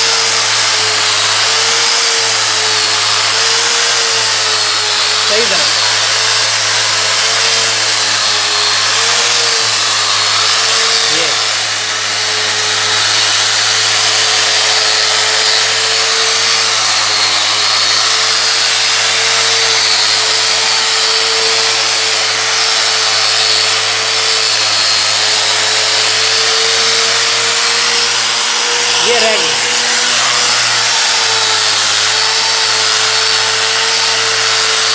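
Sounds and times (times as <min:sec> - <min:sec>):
angle grinder motor whine: 0:00.0 - 0:34.9
grinding on marble: 0:00.0 - 0:34.9.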